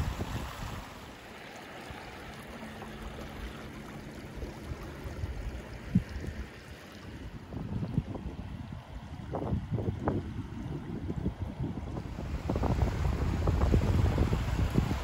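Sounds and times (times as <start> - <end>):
wind buffeting microphone: 0.0 - 1.0, 4.3 - 15.0
floodwater rushing: 0.0 - 15.0.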